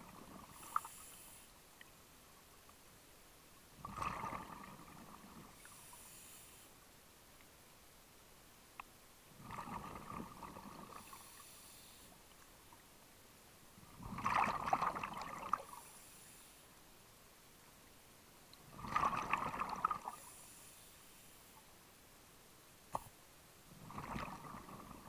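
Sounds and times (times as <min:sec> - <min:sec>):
regulator inhalation hiss: 0:00.6 - 0:01.5, 0:05.6 - 0:06.7, 0:11.0 - 0:12.2, 0:20.2 - 0:21.5
bubbling exhalations underwater: 0:09.4 - 0:11.0, 0:14.0 - 0:15.6, 0:18.8 - 0:20.0, 0:23.8 - 0:25.0.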